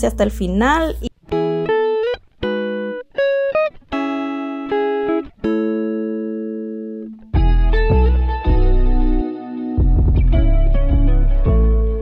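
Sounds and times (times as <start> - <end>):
guitar plucking notes: 0.0 - 12.0
full music with deep bass: 7.2 - 12.0.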